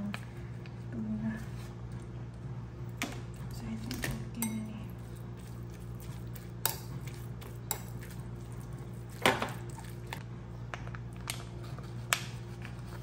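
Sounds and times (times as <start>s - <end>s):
steady low hum: 0.0s - 13.0s
spoon clinking against glass bowl: 4.4s - 4.7s.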